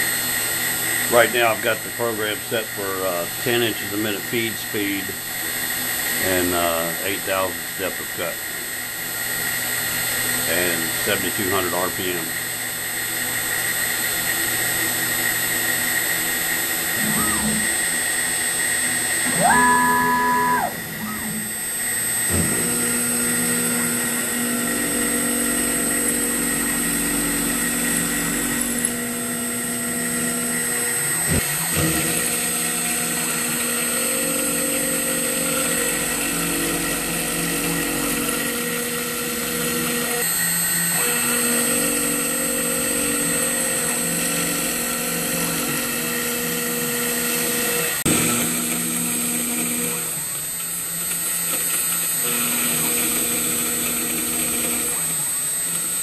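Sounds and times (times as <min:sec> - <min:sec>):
router spindle whine milling metal: 0:00.0 - 0:56.0
low hum: 0:16.8 - 0:40.2.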